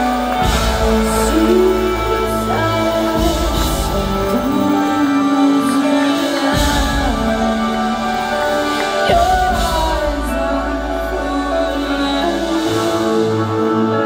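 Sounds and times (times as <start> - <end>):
deep bass: 0.0 - 14.0
live band music: 0.0 - 14.0
woman singing: 0.0 - 14.0.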